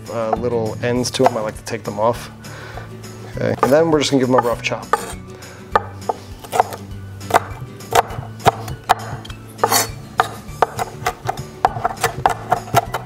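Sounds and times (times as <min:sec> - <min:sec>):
knife chopping on cutting board: 0:03.6 - 0:13.0.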